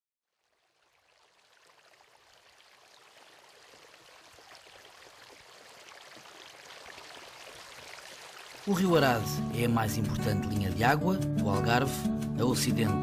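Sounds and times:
water lapping and trickling: 0:00.2 - 0:09.2.

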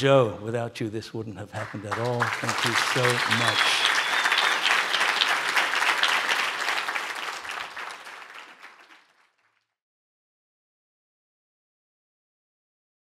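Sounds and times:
audience applauding: 0:01.6 - 0:09.6.

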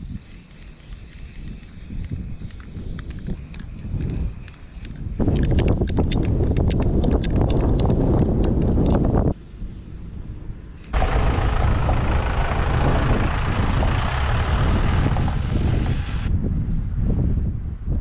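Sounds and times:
wind buffeting microphone: 0:00.0 - 0:18.0
sharp clicks: 0:00.8 - 0:09.0.

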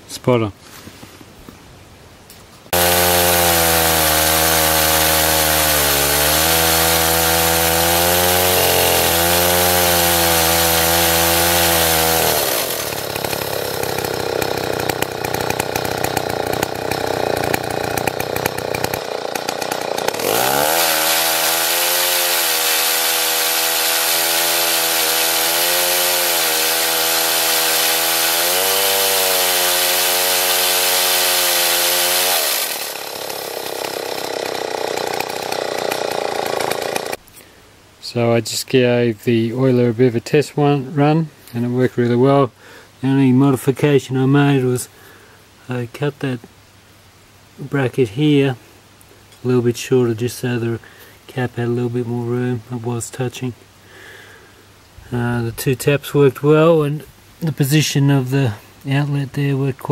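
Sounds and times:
chainsaw running at high revs: 0:02.7 - 0:37.2.

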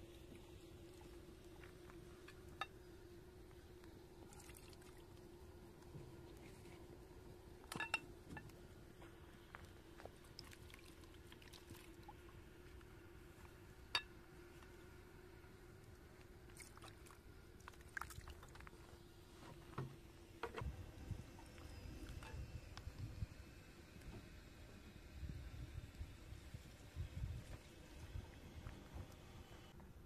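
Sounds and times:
faint steady hum: 0:00.0 - 0:30.0
clicks and knocks around a steel bowl: 0:07.7 - 0:08.5.

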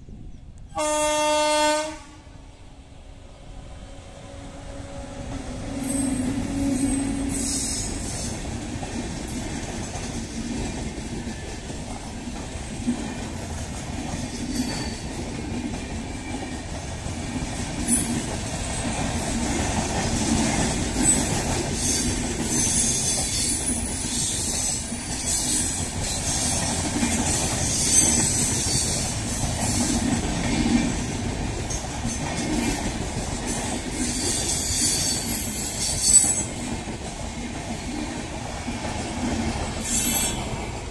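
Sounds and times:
train wheels on rails: 0:02.8 - 0:40.9
high-pitched wheel squeal: 0:04.8 - 0:08.0, 0:39.8 - 0:40.4.

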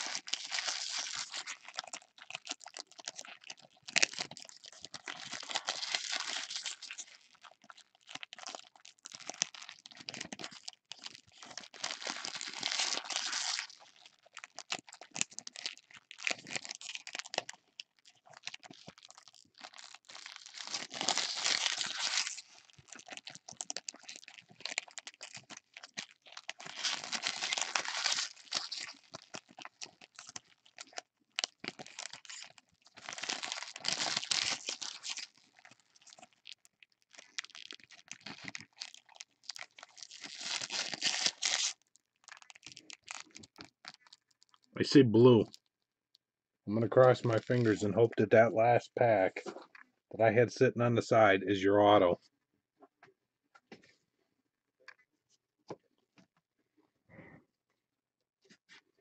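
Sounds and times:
wrappers crinkling and tearing: 0:00.0 - 0:44.7, 0:47.0 - 0:47.8.

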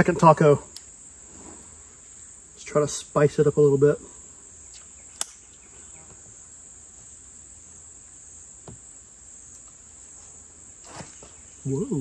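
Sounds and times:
high-pitched insect chorus: 0:00.0 - 0:12.0
sharp click: 0:04.7 - 0:05.5.

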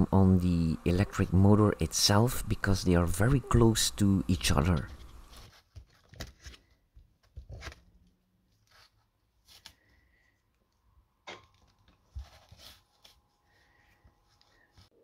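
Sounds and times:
insulating tape crackling: 0:00.0 - 0:06.3.

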